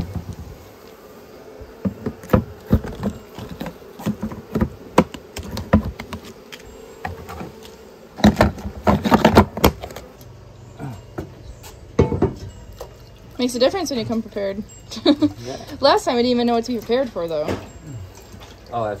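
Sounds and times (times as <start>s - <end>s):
knocks and clatter of beehive: 0.0s - 1.1s, 1.7s - 10.2s, 11.1s - 13.0s
honeybees buzzing: 0.0s - 19.0s.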